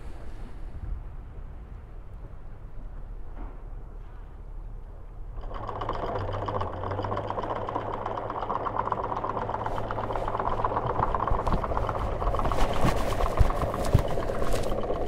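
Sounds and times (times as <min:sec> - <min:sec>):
windlass motor hum: 0:00.0 - 0:15.0
anchor chain rattling: 0:05.3 - 0:15.0.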